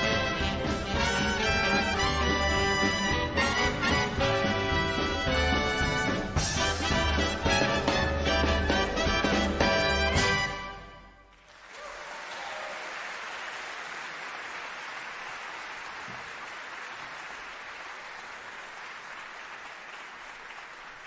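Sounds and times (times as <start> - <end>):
audience applauding: 11.3 - 21.0.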